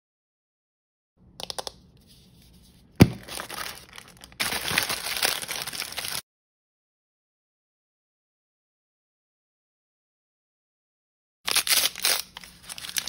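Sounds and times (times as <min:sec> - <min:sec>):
paper wrapping crinkling and tearing: 0:03.0 - 0:06.2, 0:11.5 - 0:13.0.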